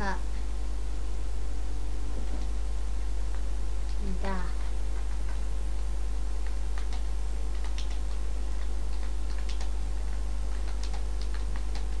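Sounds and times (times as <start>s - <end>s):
low electrical hum: 0.0s - 12.0s
keyboard keys clicking: 6.4s - 12.0s.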